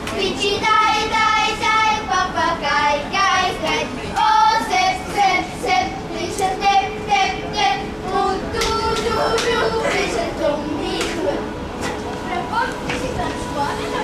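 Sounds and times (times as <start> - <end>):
children singing: 0.2 - 11.4.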